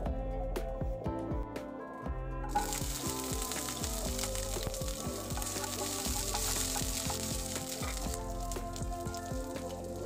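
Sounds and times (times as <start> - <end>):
background music: 0.0 - 10.0
garlic sizzling in oil: 2.5 - 10.0.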